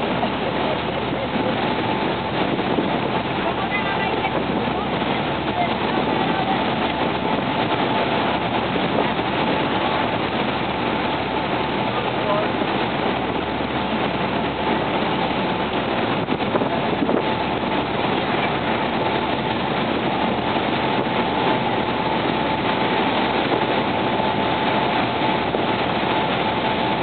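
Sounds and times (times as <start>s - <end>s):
motorboat engine: 0.0s - 27.0s
rushing water and spray: 0.0s - 27.0s
wind: 0.0s - 27.0s.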